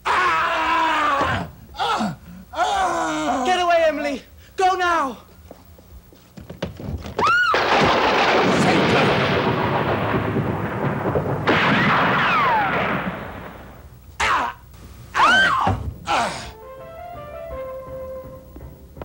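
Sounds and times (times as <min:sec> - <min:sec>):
loud rumbling crash: 0:07.5 - 0:13.8
falling wails: 0:15.2 - 0:16.6.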